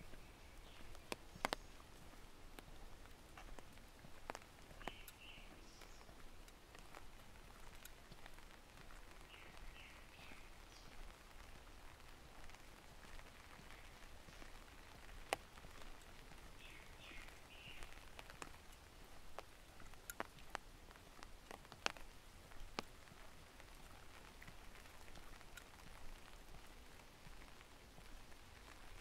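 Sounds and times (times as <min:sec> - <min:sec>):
faint steady rain hiss: 0:00.0 - 0:29.0
raindrops ticking on surfaces: 0:00.0 - 0:29.0.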